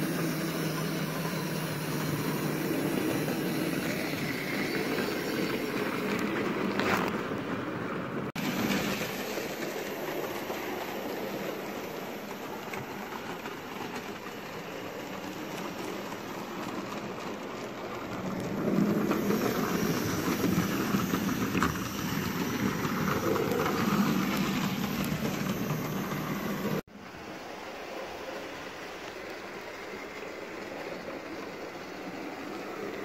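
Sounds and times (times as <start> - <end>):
small electric motor hum: 0.0 - 6.2
model train wheels rattling on rails: 0.0 - 26.8.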